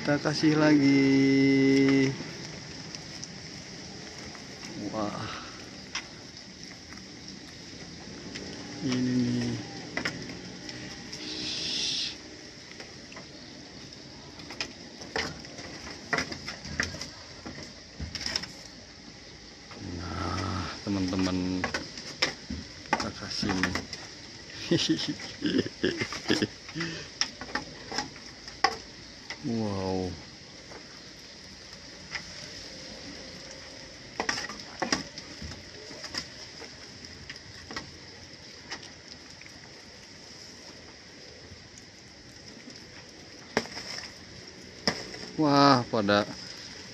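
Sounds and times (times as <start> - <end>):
faint steady background noise: 0.0 - 46.9
steady high hiss: 0.0 - 46.9
goats knocking bamboo slats: 14.4 - 18.6, 20.3 - 28.9.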